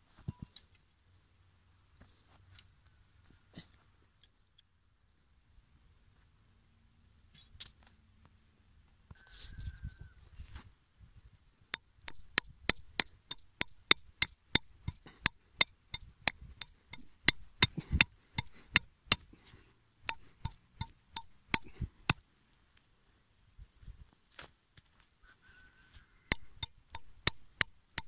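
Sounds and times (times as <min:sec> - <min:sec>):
hammer striking metal stake: 0:11.8 - 0:19.3, 0:20.1 - 0:22.2, 0:26.3 - 0:28.0.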